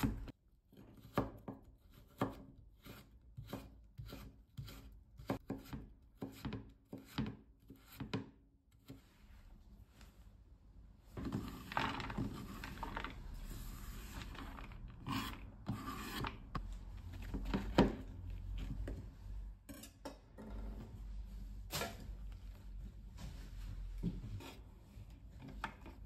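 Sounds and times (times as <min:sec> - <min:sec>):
knife scraping on cutting board: 0:11.2 - 0:16.6.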